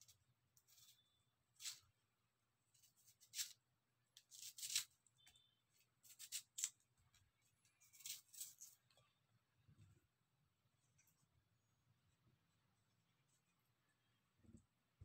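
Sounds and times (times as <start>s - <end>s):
knife slicing onion: 4.2s - 4.9s.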